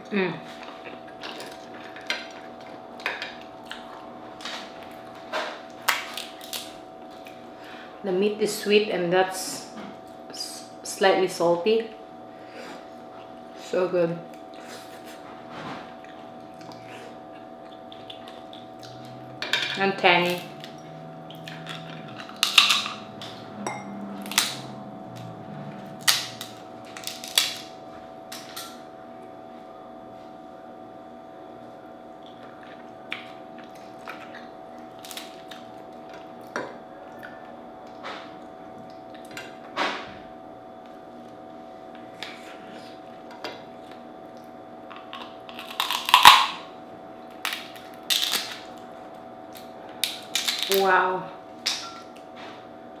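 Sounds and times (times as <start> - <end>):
faint steady hum: 0.0 - 53.0
crab shell cracking: 5.8 - 6.8, 21.5 - 23.0, 26.0 - 27.7, 44.9 - 46.6, 47.3 - 48.8, 49.5 - 50.8.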